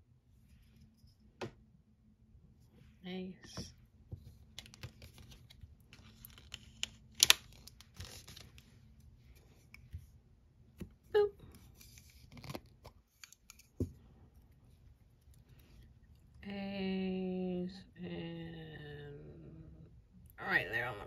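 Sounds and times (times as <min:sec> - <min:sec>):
plastic card scraping: 0:04.5 - 0:08.7, 0:11.7 - 0:13.8.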